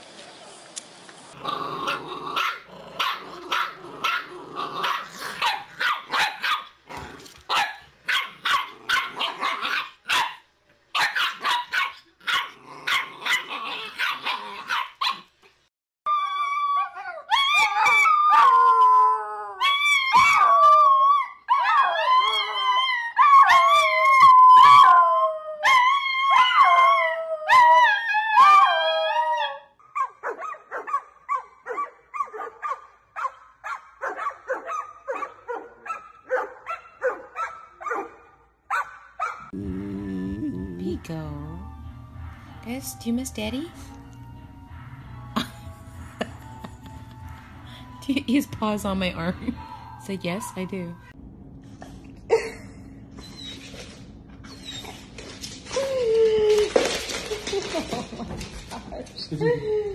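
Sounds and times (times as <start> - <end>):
dog howling: 16.1 - 29.7.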